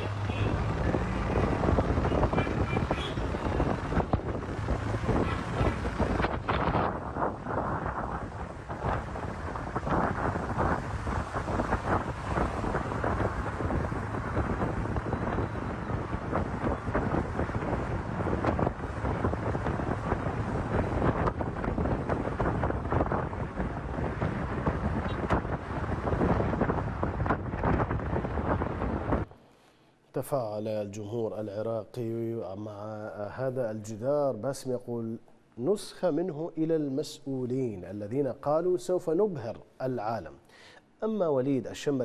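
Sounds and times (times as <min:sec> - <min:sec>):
wind buffeting microphone: 0:00.0 - 0:29.3
road traffic rumble: 0:00.0 - 0:29.6.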